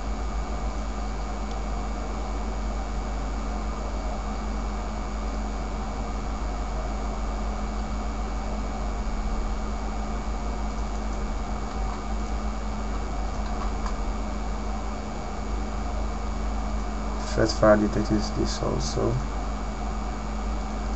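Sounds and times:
background hum and hiss: 0:00.0 - 0:20.9.

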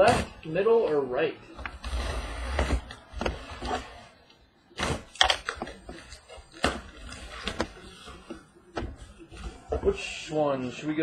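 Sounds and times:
cardboard knocks and scrapes: 0:01.6 - 0:04.1, 0:04.8 - 0:10.0.

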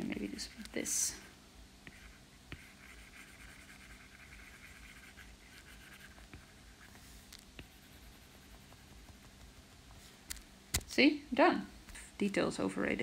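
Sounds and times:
stylus scratching on a screen: 0:01.9 - 0:09.9.

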